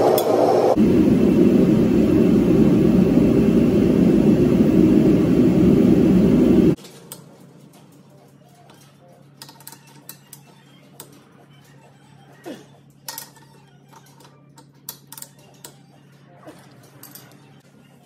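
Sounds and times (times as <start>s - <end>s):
loud rushing mechanical noise: 0.0s - 6.8s.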